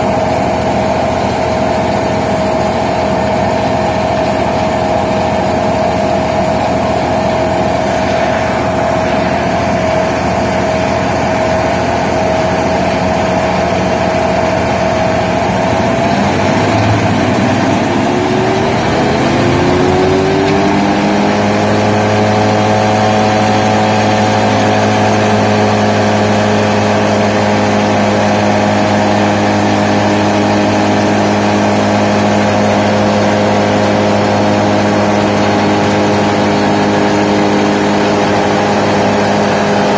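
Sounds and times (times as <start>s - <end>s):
wood chipper engine running: 0.0s - 39.9s.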